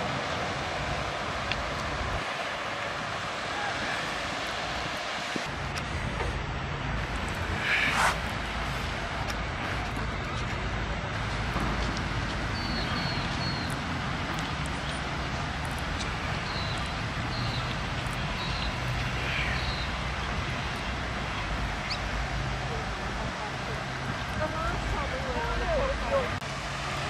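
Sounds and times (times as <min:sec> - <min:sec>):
small birds chirping: 0:12.3 - 0:22.9.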